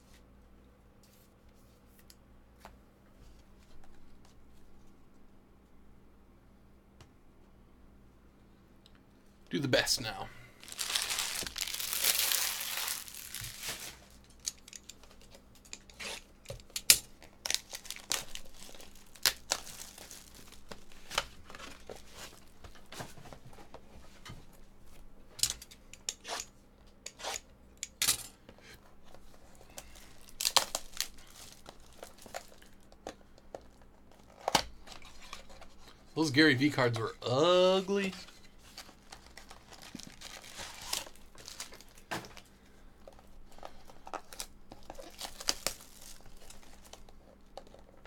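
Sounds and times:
plastic shrink wrap tearing: 10.6 - 15.2, 17.2 - 21.0, 29.8 - 32.8, 39.0 - 42.0, 44.0 - 47.1
plastic wrap crinkling: 10.6 - 16.0, 16.7 - 22.9, 29.0 - 34.4, 38.4 - 48.0.

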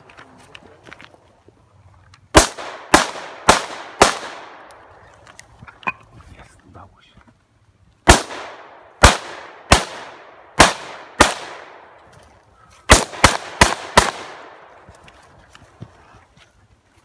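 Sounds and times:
rifle shots echoing: 2.3 - 4.9, 8.1 - 12.0, 12.9 - 14.9.

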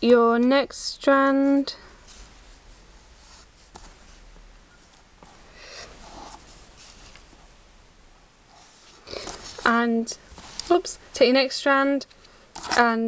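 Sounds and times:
floss rustling on a clipboard: 1.2 - 7.4, 8.5 - 11.0.

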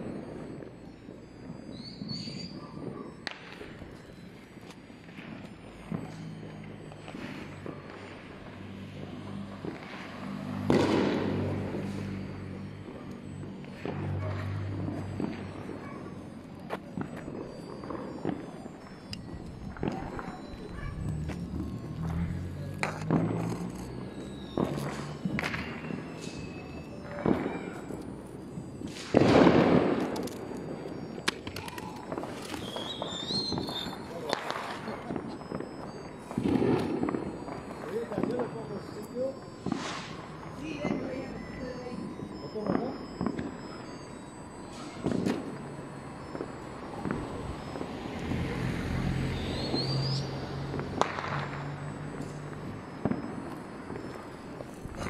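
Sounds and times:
crackles and pops: 0.0 - 55.0
rising whistle: 0.0 - 55.0
vehicle engine hum: 18.8 - 28.8, 33.8 - 55.0
sharp pops: 31.2 - 41.0, 42.0 - 55.0.

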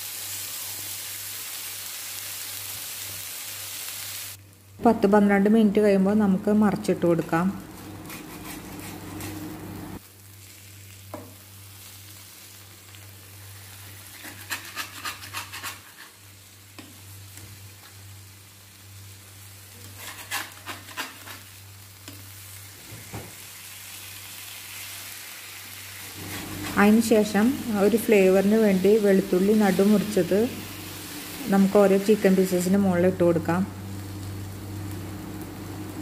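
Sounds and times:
chicken sizzling on a pan: 0.0 - 4.8, 7.6 - 36.0
spatula scraping a pan: 7.8 - 9.6, 13.9 - 16.2, 19.8 - 21.6, 26.2 - 27.0.

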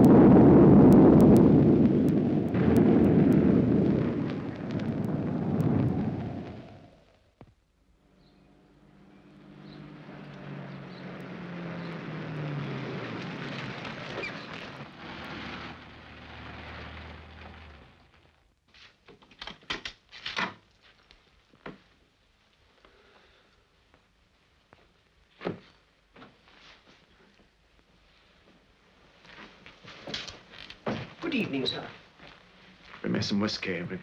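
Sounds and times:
car engine running: 8.6 - 18.4.

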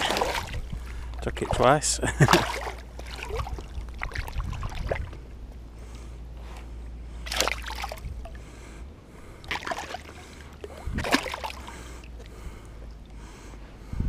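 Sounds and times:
fish splashing in water: 0.0 - 5.2, 7.2 - 8.5, 9.4 - 12.4
low rumble: 0.0 - 14.0.

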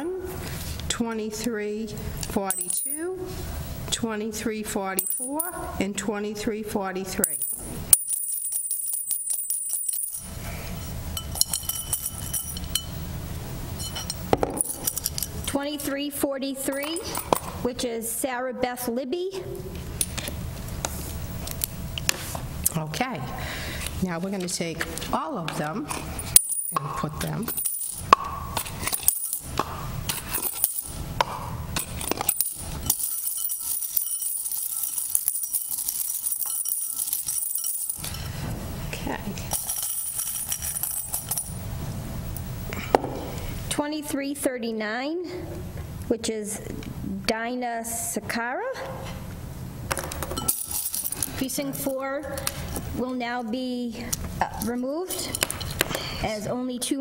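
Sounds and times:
metal tags clinking: 2.2 - 3.1, 5.0 - 5.8, 7.2 - 13.0, 13.8 - 15.6, 16.6 - 17.6, 24.4 - 38.5, 39.2 - 41.7, 49.9 - 53.2.

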